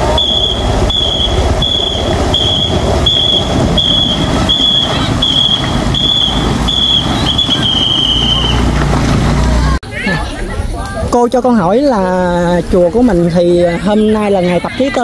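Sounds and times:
whistle blasts: 0.0 - 8.8
steady rushing noise: 0.0 - 9.8.

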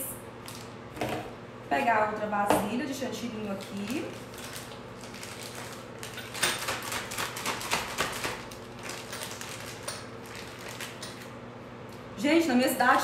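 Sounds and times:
plastic bag crinkling: 3.3 - 11.4.

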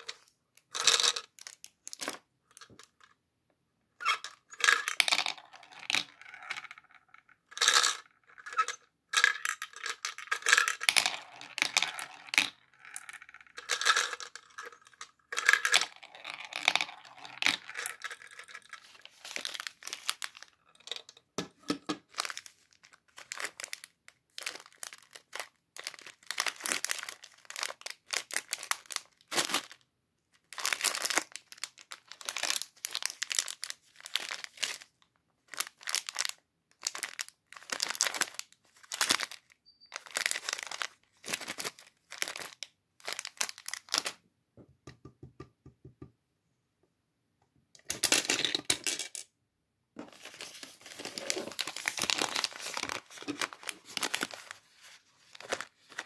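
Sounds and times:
plastic wrappers crinkling and tearing: 17.5 - 20.6, 22.0 - 29.8, 30.4 - 44.2, 50.1 - 56.0.

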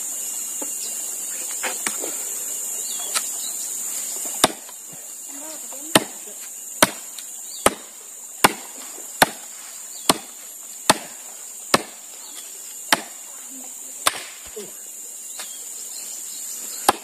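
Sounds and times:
axe chopping firewood: 4.3 - 4.8, 5.9 - 6.2, 6.8 - 12.1, 12.9 - 13.2, 14.0 - 14.6.

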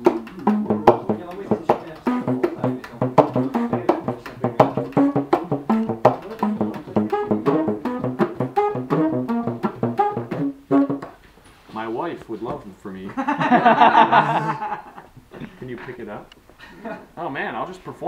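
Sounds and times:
muted saxophone notes: 0.0 - 11.1
percussive slaps and clicks: 0.0 - 11.2.

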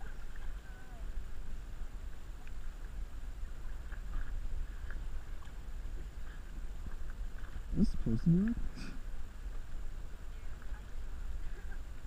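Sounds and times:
water lapping against hull: 0.0 - 12.0.

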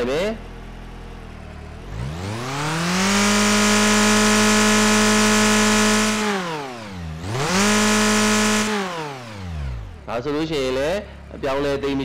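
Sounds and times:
simulated car engine revving: 1.3 - 10.7.

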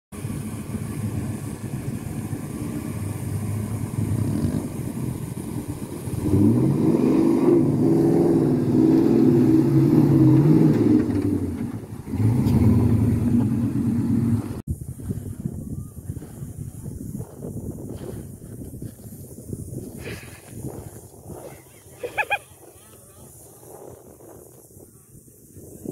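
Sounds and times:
truck engine revving: 0.2 - 14.6.

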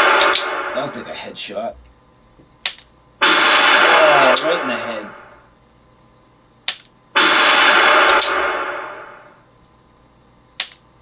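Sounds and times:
simulated gunshot: 0.0 - 1.1, 3.2 - 5.4, 7.2 - 9.4.

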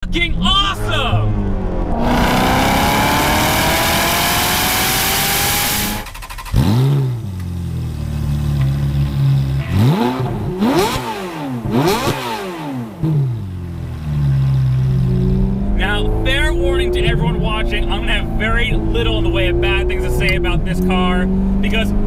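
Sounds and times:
car engine accelerating hard: 0.2 - 22.0
sharp engine rev blips: 1.3 - 7.2, 9.6 - 13.4.

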